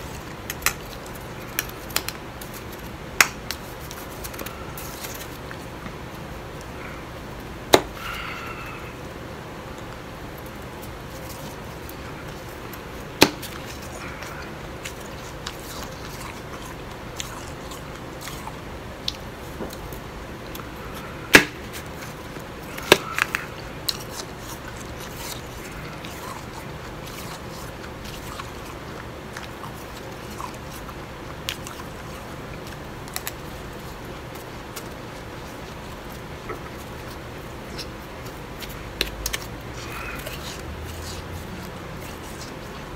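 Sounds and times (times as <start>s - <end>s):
crunching and chewing ice: 9.8s - 42.9s.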